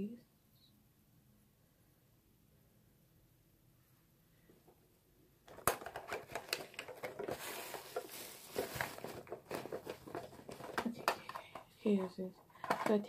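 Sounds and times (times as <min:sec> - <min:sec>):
small hard objects clattering: 0:05.5 - 0:12.0.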